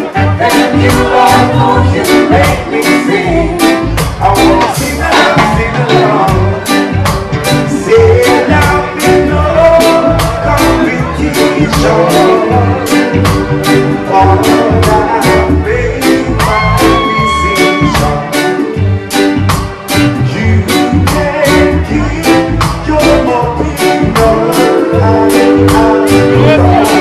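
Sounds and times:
man singing: 0.0s - 18.8s, 20.0s - 27.0s
live reggae band playing: 0.0s - 27.0s.

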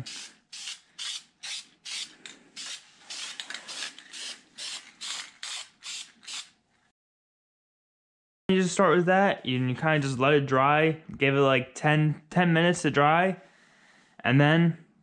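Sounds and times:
spray can hissing in puffs: 0.0s - 6.5s.

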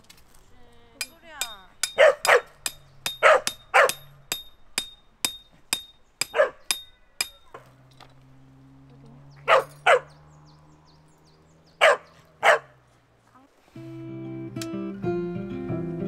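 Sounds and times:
dog barking: 2.0s - 2.6s, 3.2s - 4.0s, 6.3s - 6.7s, 9.4s - 10.2s, 11.8s - 12.8s.

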